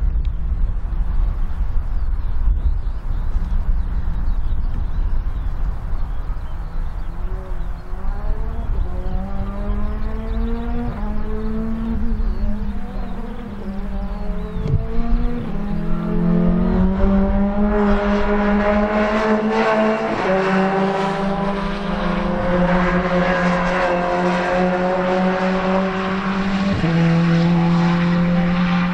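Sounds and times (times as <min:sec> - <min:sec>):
race car engine accelerating: 0:06.3 - 0:28.9.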